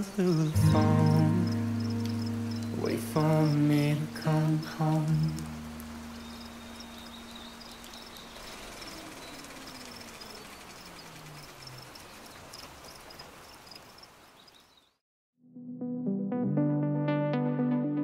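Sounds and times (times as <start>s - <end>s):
faint ambient hiss: 0.0s - 14.7s
low song notes: 0.5s - 7.9s
high insect-like chirps: 0.6s - 4.0s, 5.1s - 14.7s.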